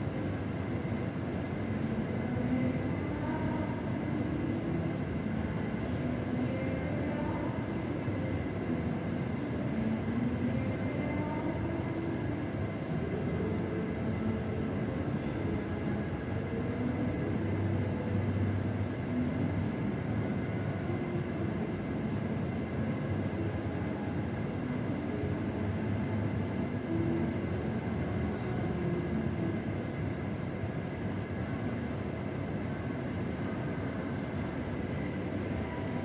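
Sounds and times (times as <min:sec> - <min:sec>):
low room rumble: 0:00.0 - 0:36.0
faint high-pitched tone: 0:33.4 - 0:36.0.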